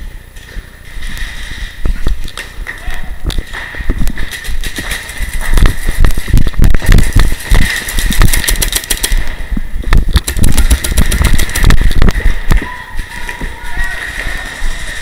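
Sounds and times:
paintball markers firing: 0:06.4 - 0:09.4, 0:10.1 - 0:12.4.

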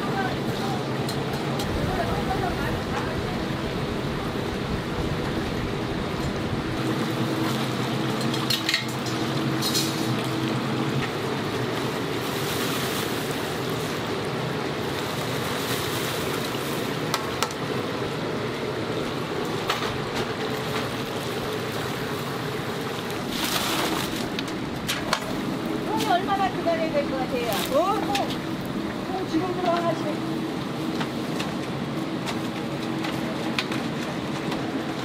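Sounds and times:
utensils clinking against pot: 0:08.2 - 0:10.2.

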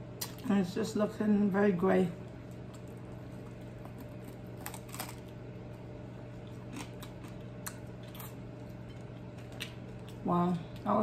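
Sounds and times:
steady low hum: 0:00.0 - 0:11.0
crispy chicken crunching: 0:02.2 - 0:11.0.

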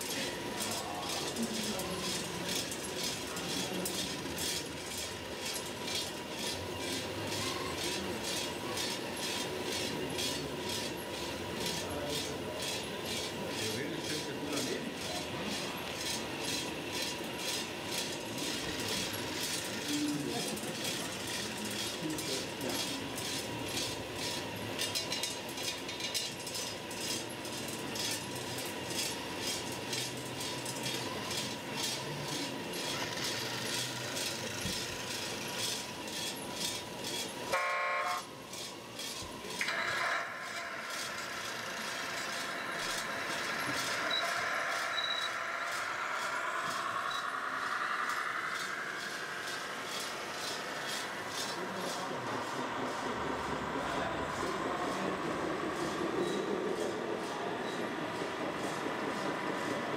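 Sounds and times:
model truck motors running: 0:00.0 - 0:59.9
horn toot: 0:37.6 - 0:38.2
motor whine rising in pitch: 0:39.7 - 0:51.6.

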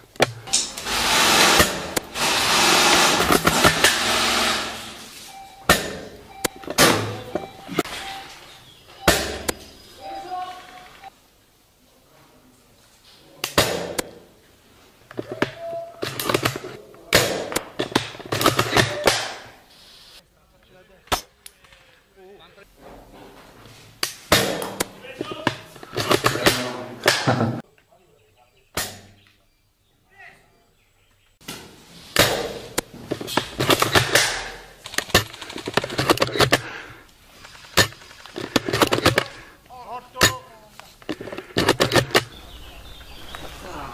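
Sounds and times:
airsoft guns firing: 0:00.2 - 0:05.0, 0:09.0 - 0:09.7, 0:16.0 - 0:19.6, 0:24.2 - 0:25.0, 0:32.2 - 0:39.5.

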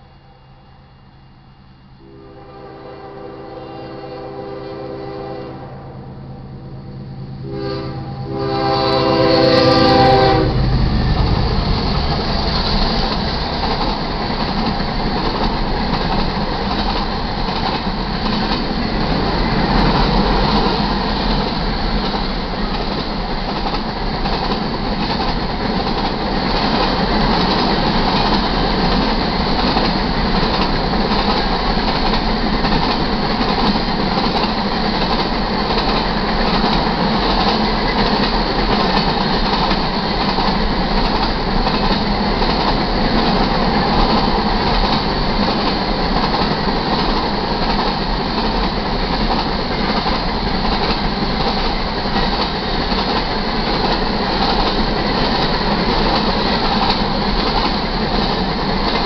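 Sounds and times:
train rumbling past: 0:00.0 - 0:59.0
locomotive horn blasts: 0:02.0 - 0:10.6
clickety-clack of train wheels: 0:08.3 - 0:59.0.

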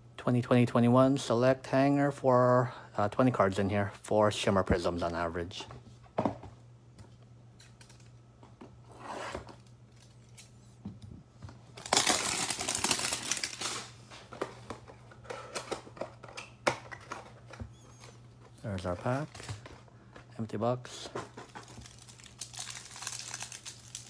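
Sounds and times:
cardboard and wrapper rustling: 0:11.8 - 0:16.2, 0:21.2 - 0:24.0.

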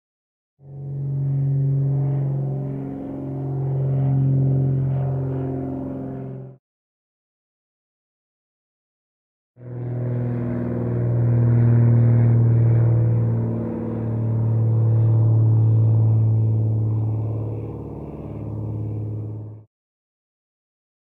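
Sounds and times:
propeller aircraft engine drone: 0:00.6 - 0:06.6, 0:09.6 - 0:19.7.

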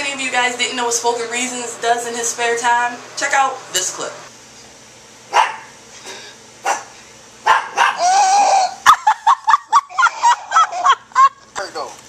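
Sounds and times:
dog barking and yelping: 0:05.3 - 0:05.8, 0:06.6 - 0:09.2, 0:09.8 - 0:11.0
long wavering cry: 0:08.0 - 0:09.0.

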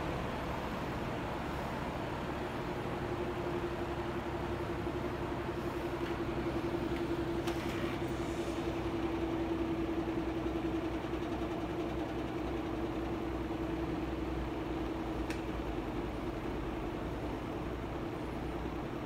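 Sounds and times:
fan air rushing: 0:00.0 - 0:10.2.

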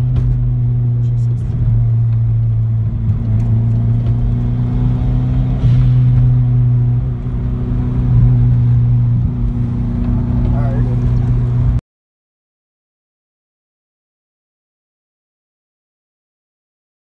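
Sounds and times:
car engine droning inside cabin: 0:00.0 - 0:11.8.

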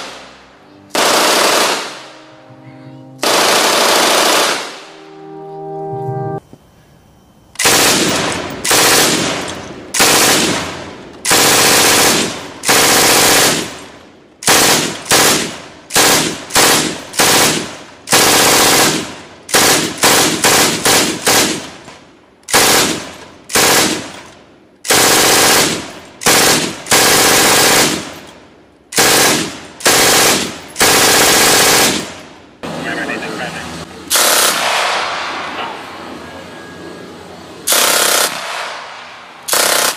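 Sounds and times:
gunfire echo: 0:00.0 - 0:02.3, 0:03.2 - 0:04.9, 0:07.6 - 0:21.9, 0:34.1 - 0:35.9, 0:37.7 - 0:39.9
machine gun bursts: 0:01.0 - 0:02.0, 0:03.2 - 0:04.8, 0:07.6 - 0:21.9, 0:22.5 - 0:24.3, 0:24.9 - 0:28.3, 0:29.0 - 0:32.2, 0:34.1 - 0:34.8, 0:37.7 - 0:38.8, 0:39.5 - 0:39.9.

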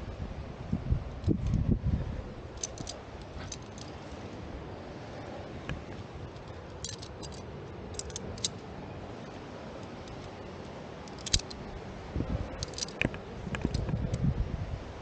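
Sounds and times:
metal climbing gear clinking: 0:02.5 - 0:04.2, 0:05.7 - 0:08.7, 0:09.8 - 0:11.7, 0:12.5 - 0:14.2.

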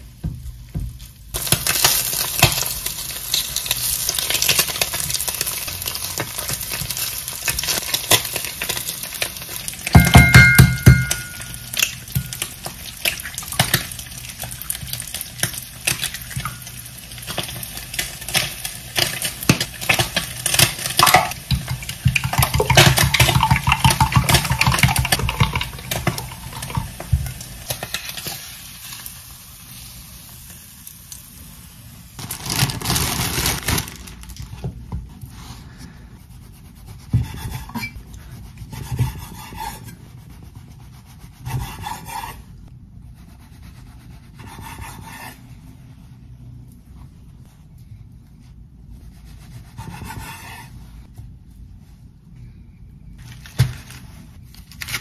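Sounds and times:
meat sizzling in a frying pan: 0:01.3 - 0:10.0, 0:11.7 - 0:32.2.

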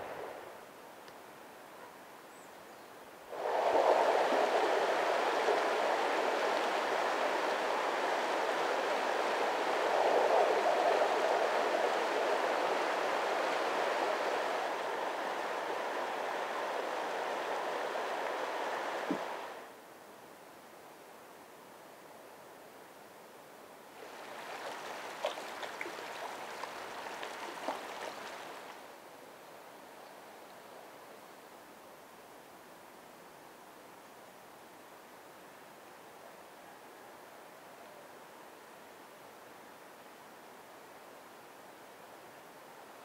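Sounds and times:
stream flowing over stones: 0:24.0 - 0:28.8.

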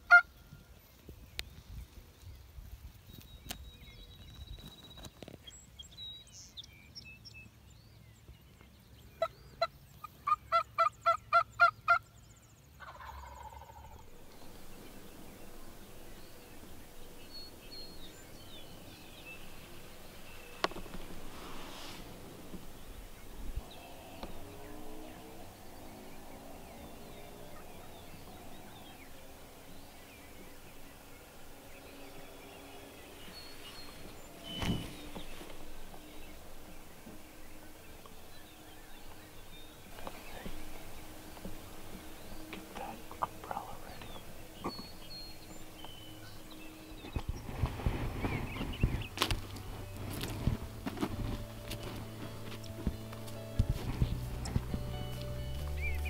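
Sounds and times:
longer turkey call: 0:00.0 - 0:00.3, 0:09.2 - 0:12.0, 0:12.8 - 0:14.1
songbirds chirping: 0:00.0 - 0:56.0
wild turkey yelping: 0:00.1 - 0:00.3, 0:09.2 - 0:12.1, 0:12.8 - 0:17.6, 0:40.0 - 0:46.4.

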